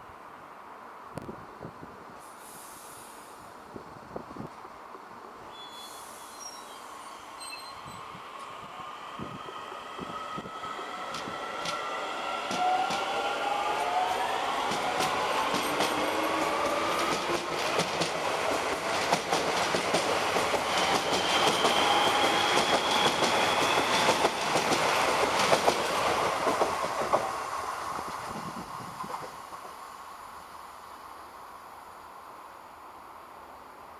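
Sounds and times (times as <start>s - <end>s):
train wheels clicking on rail joints: 10.4s - 13.6s, 14.5s - 29.8s.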